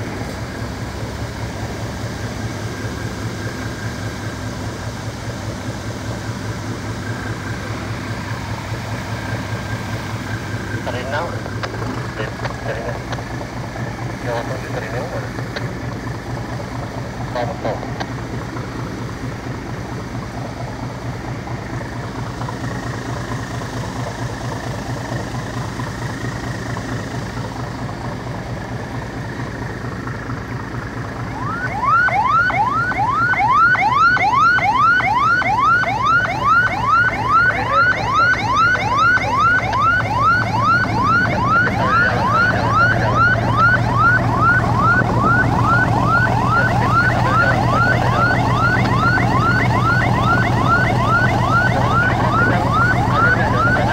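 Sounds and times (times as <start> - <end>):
boat engine running: 0.0 - 53.9
electronic siren yelping: 31.1 - 53.9.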